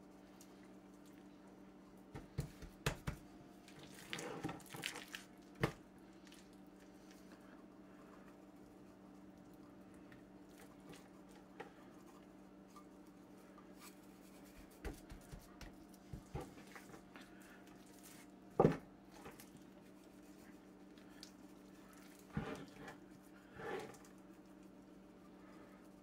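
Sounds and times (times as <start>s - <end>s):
hand patting meat on board: 2.1s - 3.3s, 14.5s - 16.8s
steady low hum: 5.2s - 26.0s.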